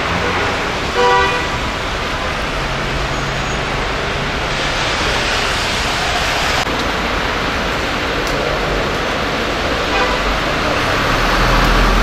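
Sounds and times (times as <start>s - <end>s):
city street traffic: 0.0s - 12.0s.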